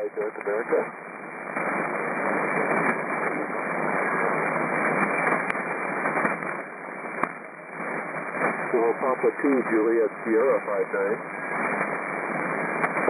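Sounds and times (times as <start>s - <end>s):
radio band noise hiss: 0.0s - 13.0s
static crackles: 0.0s - 13.0s.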